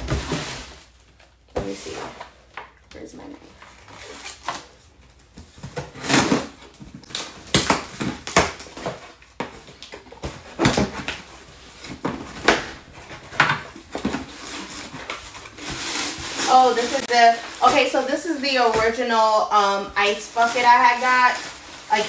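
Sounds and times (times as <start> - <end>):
packing tape tearing: 5.6 - 19.0
cardboard flaps scraping: 8.0 - 17.9.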